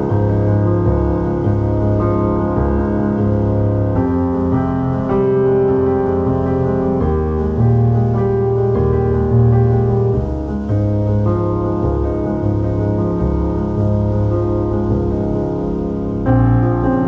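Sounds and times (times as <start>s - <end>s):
soft piano music: 0.0s - 17.0s
steady bass: 0.0s - 17.0s.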